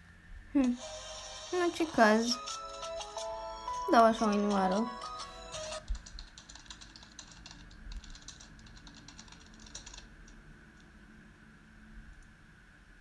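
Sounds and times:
keyboard typing: 0:01.1 - 0:10.4.

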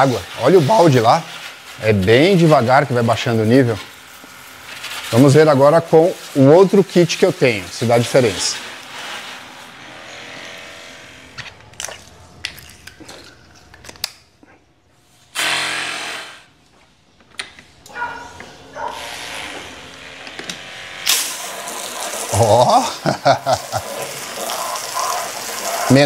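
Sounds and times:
foam sprayer motor whirring: 0:00.0 - 0:11.6, 0:18.8 - 0:26.0
water pump spraying: 0:00.0 - 0:12.1, 0:18.8 - 0:26.0.

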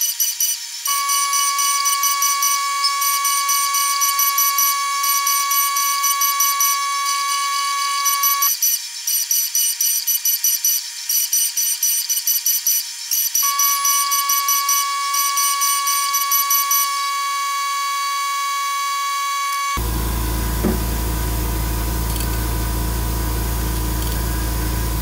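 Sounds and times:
high buzzing whine of mill: 0:00.9 - 0:08.5, 0:13.4 - 0:25.0.

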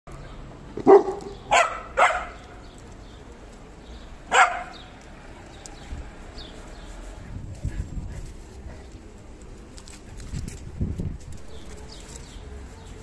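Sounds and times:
dog barking: 0:00.8 - 0:02.4, 0:04.3 - 0:04.8.

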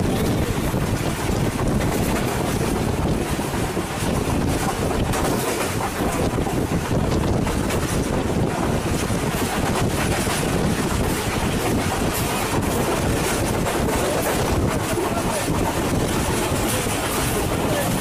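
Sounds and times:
train running noise: 0:00.0 - 0:18.0
wind rushing over microphone: 0:00.0 - 0:18.0.

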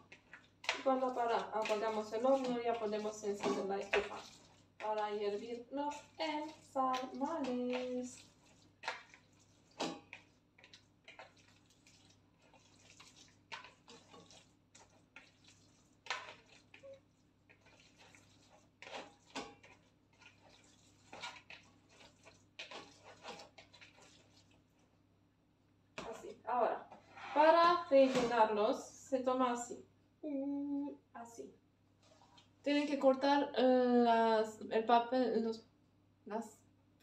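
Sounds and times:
hand squelching wet meat mixture: 0:00.0 - 0:25.0.

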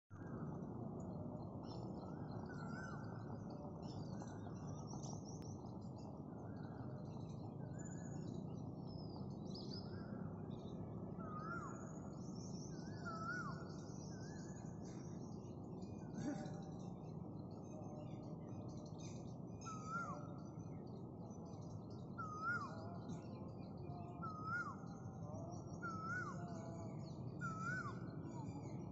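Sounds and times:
whistled bird notes: 0:11.2 - 0:16.8, 0:17.6 - 0:28.9
birds chirping and calling: 0:11.2 - 0:28.9.

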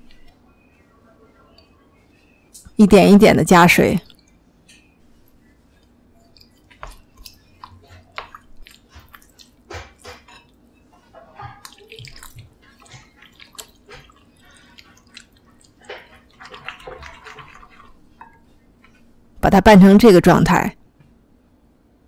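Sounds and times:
spatula stirring thick paste: 0:05.6 - 0:19.1.

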